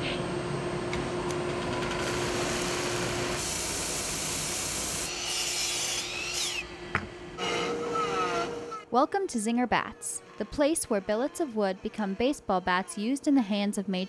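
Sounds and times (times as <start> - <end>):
sanding machine motor hum: 1.0 - 8.8.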